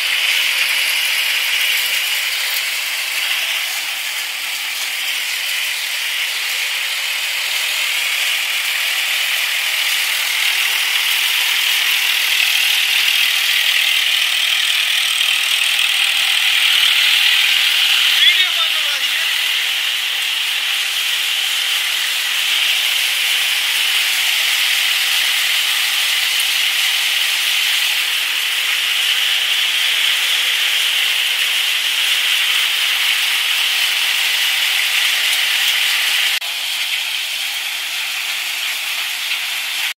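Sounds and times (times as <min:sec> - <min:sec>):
thresher machine rushing: 0:00.0 - 0:38.1.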